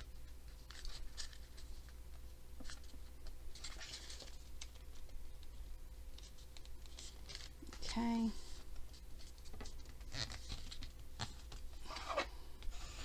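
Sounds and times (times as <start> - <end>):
cardstock rustling on a table: 2.6 - 5.2.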